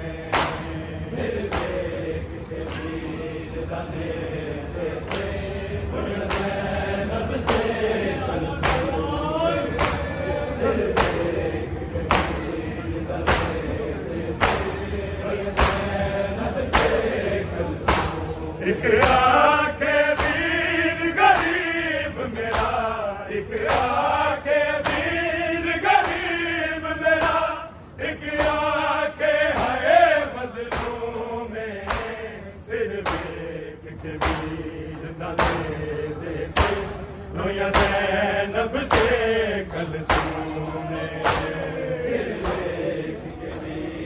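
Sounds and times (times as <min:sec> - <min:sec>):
men chanting together: 0:00.0 - 0:44.0
chest-beating slaps: 0:00.2 - 0:00.8, 0:01.4 - 0:03.2, 0:06.1 - 0:07.8, 0:08.4 - 0:09.1, 0:09.7 - 0:10.1, 0:10.9 - 0:11.4, 0:12.0 - 0:12.6, 0:13.2 - 0:16.0, 0:16.7 - 0:17.2, 0:17.8 - 0:19.4, 0:20.1 - 0:21.8, 0:22.4 - 0:24.2, 0:24.8 - 0:25.2, 0:26.0 - 0:26.4, 0:27.1 - 0:27.5, 0:28.3 - 0:28.9, 0:29.5 - 0:29.9, 0:30.6 - 0:31.2, 0:31.8 - 0:32.2, 0:33.0 - 0:35.8, 0:36.5 - 0:37.0, 0:37.7 - 0:38.1, 0:38.8 - 0:41.7, 0:42.3 - 0:42.8.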